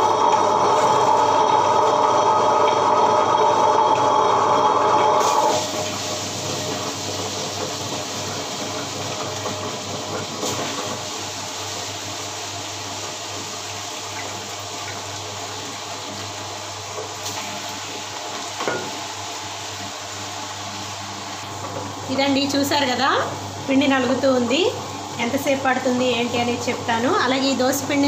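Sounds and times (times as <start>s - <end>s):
grinder motor hum: 0.0s - 6.9s.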